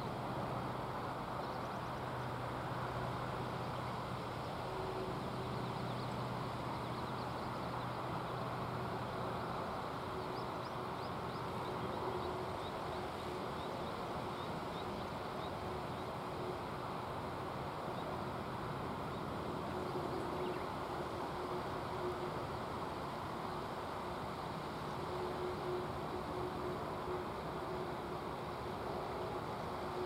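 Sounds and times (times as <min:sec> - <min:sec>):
river rushing: 0:00.0 - 0:30.0.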